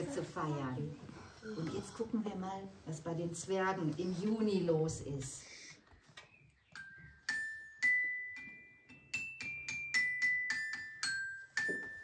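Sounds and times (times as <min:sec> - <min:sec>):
glockenspiel melody: 0:06.6 - 0:12.0.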